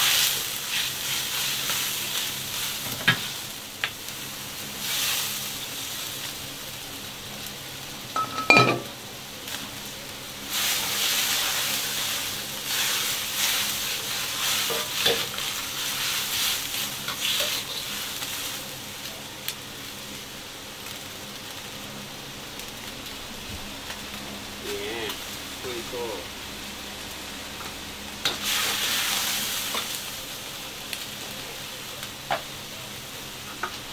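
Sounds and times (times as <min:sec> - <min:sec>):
broth bubbling and sizzling in a wok: 0:00.0 - 0:33.9
ringing metal clang: 0:08.2 - 0:08.9.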